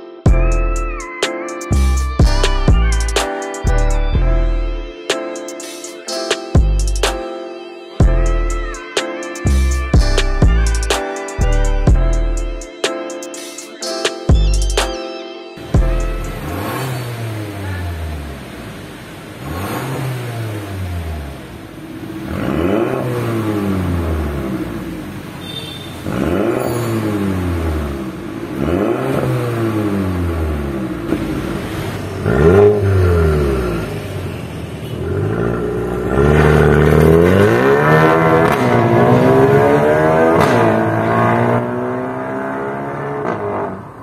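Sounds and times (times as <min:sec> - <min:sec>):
car accelerating away: 0:15.6 - 0:25.4, 0:26.0 - 0:44.0
car exhaust revving: 0:15.6 - 0:25.4, 0:26.0 - 0:44.0.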